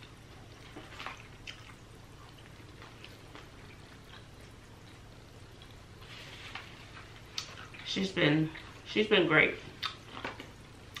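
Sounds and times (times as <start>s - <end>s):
chewing sounds: 0.0s - 6.1s.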